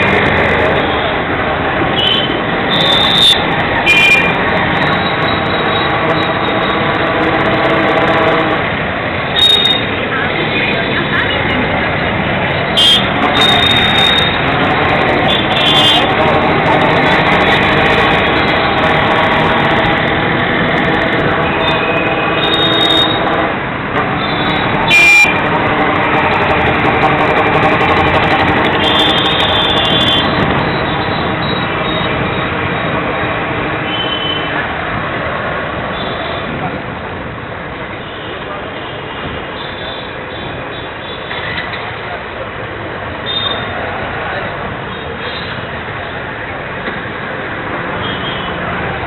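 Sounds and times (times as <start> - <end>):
horns honking: 0.0 - 11.7, 12.5 - 34.7, 47.9 - 48.8
motorcycles and vehicles running: 0.0 - 49.0.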